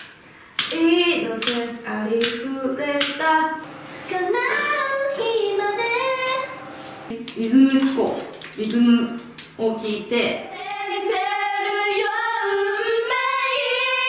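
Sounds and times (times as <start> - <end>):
woman singing unaccompanied: 0.7 - 8.0.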